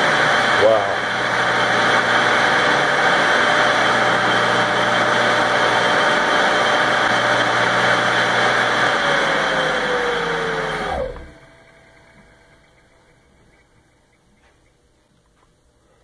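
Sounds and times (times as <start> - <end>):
electric motor whirring: 0.0 - 12.7
motor spinning down: 0.0 - 13.4.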